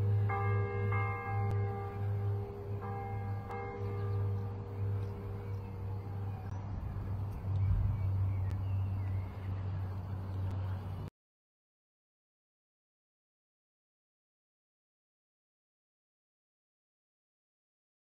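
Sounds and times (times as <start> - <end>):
bell-like tones ringing: 0.0 - 6.7
low steady hum: 0.0 - 11.1.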